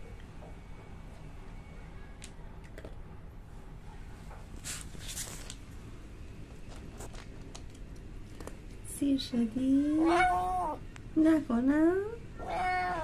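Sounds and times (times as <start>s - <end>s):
cat crunching dry kibble: 2.6s - 3.0s, 6.7s - 8.8s.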